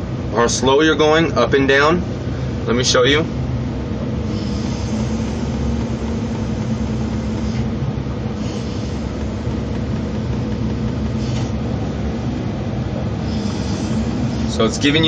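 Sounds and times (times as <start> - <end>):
diesel engine running: 0.0 - 15.0
hydraulics whining: 2.1 - 15.0
winch running: 4.1 - 15.0.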